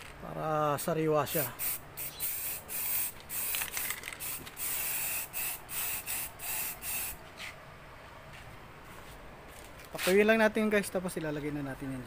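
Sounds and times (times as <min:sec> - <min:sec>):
spray can hissing in bursts: 0:01.4 - 0:07.5.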